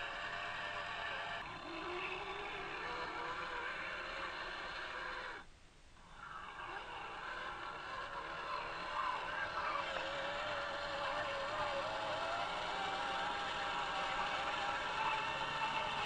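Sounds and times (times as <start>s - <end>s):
toy truck electric motor whining: 6.8s - 16.0s.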